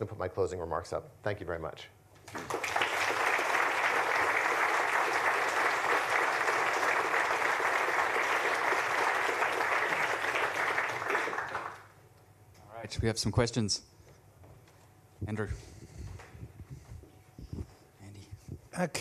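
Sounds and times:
audience applauding: 0:02.3 - 0:12.0.

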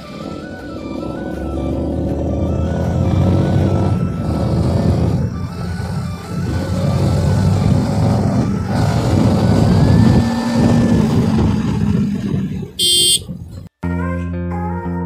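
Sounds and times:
motorcycle running: 0:00.0 - 0:13.7
wind rushing over microphone: 0:03.1 - 0:13.7.

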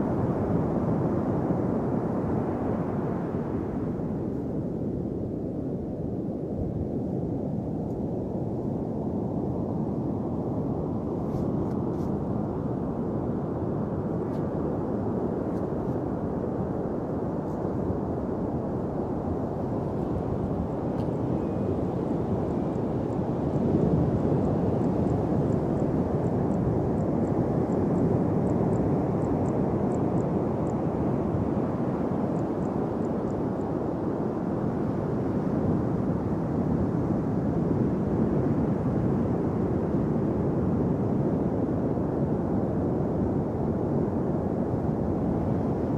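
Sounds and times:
wind: 0:00.0 - 0:45.9.

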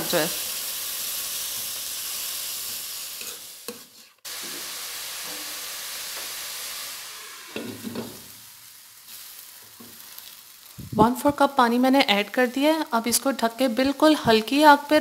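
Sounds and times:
noodles sizzling in a pan: 0:00.0 - 0:15.0
spatula scraping a pan: 0:02.6 - 0:05.6.

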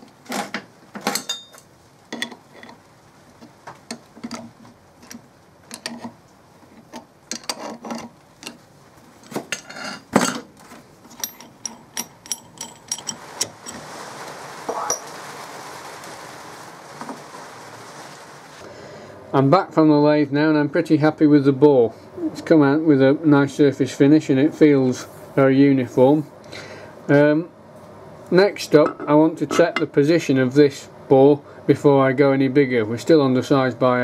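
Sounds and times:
metal clinks and knocks: 0:11.0 - 0:13.8
steady even noise: 0:13.1 - 0:19.6.

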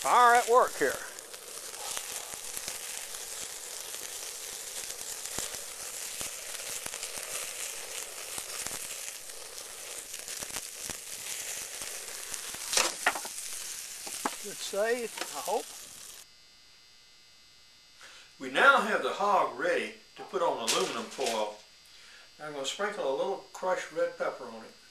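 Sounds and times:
fire crackling: 0:00.0 - 0:16.3, 0:20.1 - 0:22.7
meat sizzling over fire: 0:00.0 - 0:16.3, 0:20.6 - 0:22.7.

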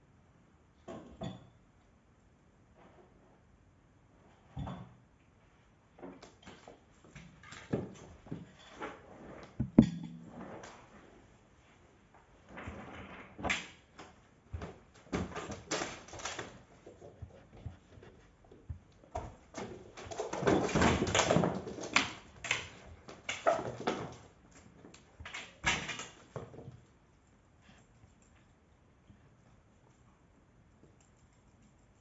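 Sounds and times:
knocks and thumps on wooden floor: 0:09.6 - 0:10.3.

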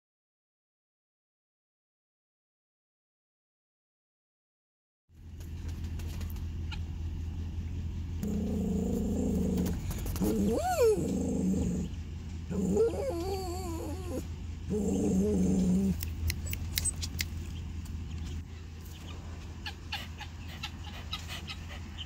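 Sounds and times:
steady low hum: 0:05.1 - 0:22.0
animal growling: 0:08.2 - 0:16.7
wavering animal call: 0:08.2 - 0:17.0
animal whine: 0:08.2 - 0:17.2.

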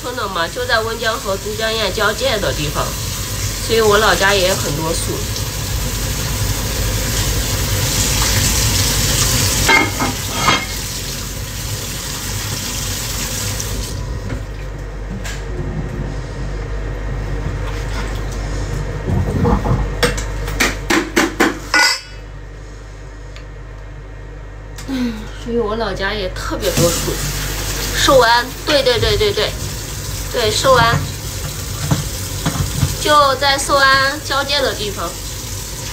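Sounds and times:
metal dishes and pans clattering: 0:09.7 - 0:10.8, 0:21.8 - 0:22.2.

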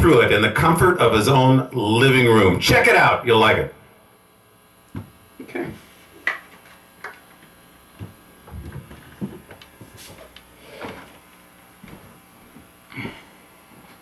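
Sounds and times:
guitar handling thumps and clicks: 0:04.9 - 0:07.2, 0:08.0 - 0:11.1
footsteps walking away: 0:05.0 - 0:14.0.

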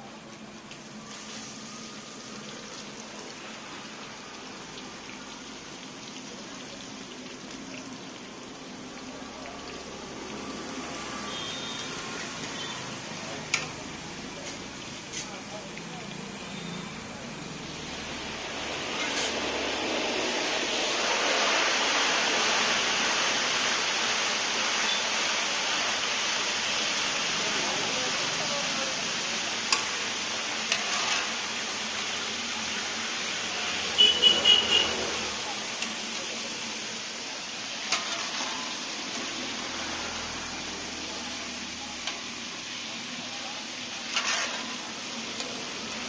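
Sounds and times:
food deep-frying in oil: 0:00.0 - 0:46.0.

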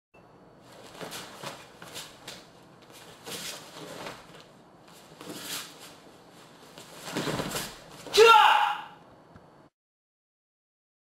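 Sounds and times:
bare feet shuffling on mats: 0:00.6 - 0:08.2
uniforms swishing: 0:00.7 - 0:08.2.

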